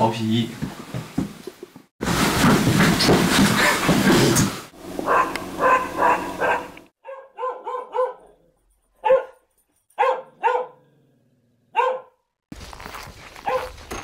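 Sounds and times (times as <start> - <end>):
dog barking: 5.0 - 8.4, 9.0 - 9.4, 10.0 - 10.9, 11.7 - 12.3, 13.4 - 13.8.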